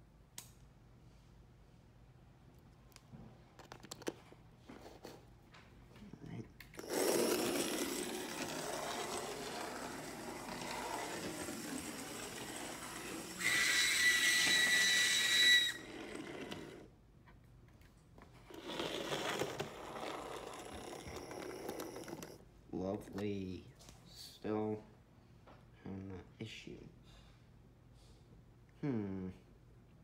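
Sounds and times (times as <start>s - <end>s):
model locomotive motor grinding whir: 6.8s - 16.9s, 18.5s - 22.4s.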